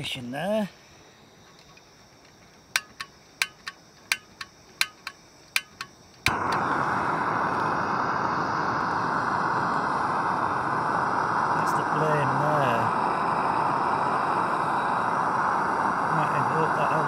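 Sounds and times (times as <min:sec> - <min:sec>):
gas burner rushing: 0:02.6 - 0:17.0
stove igniter clicking: 0:02.7 - 0:08.2.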